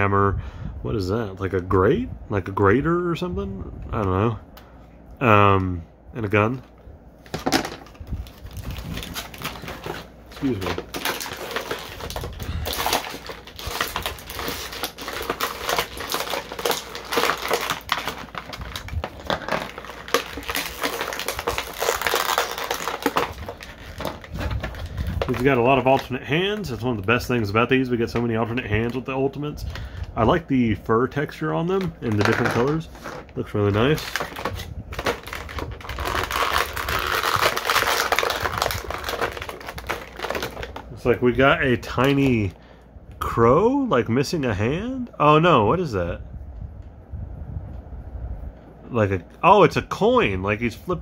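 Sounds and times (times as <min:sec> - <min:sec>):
plastic packaging crinkling: 0:06.5 - 0:30.5, 0:31.2 - 0:42.6.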